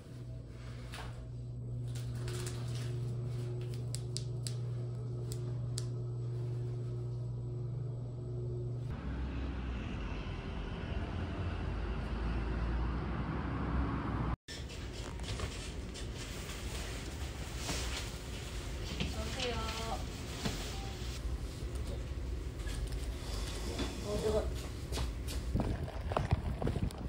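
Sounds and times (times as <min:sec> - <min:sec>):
rumbling traffic hum: 0:03.3 - 0:14.4.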